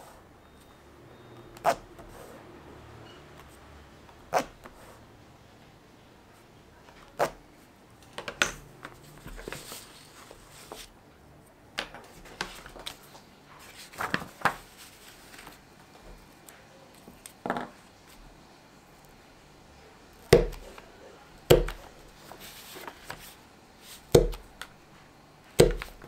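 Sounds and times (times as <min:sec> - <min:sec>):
paper sliding and rustling: 0:08.9 - 0:10.9, 0:12.1 - 0:15.6, 0:22.2 - 0:24.1.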